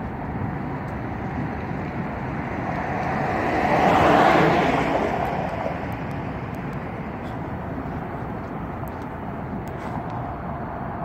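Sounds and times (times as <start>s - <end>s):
car driving past: 2.2s - 8.6s.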